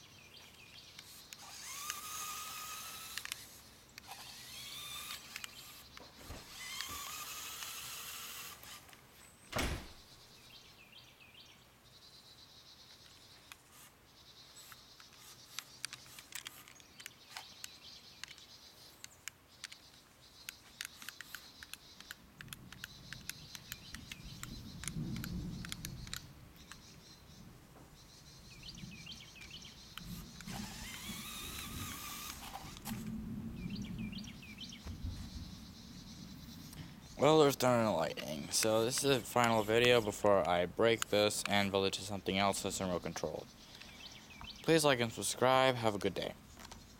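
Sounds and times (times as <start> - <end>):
scattered clicks: 0.7 - 9.0, 14.6 - 26.9, 29.4 - 33.0, 37.3 - 44.6
electric motors whirring: 1.0 - 9.0, 30.0 - 33.1.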